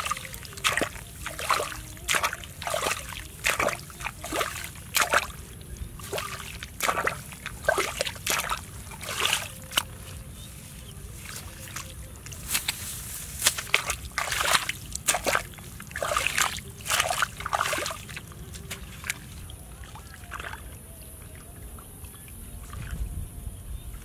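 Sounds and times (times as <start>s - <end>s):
muddy water splashing: 0.0s - 23.2s.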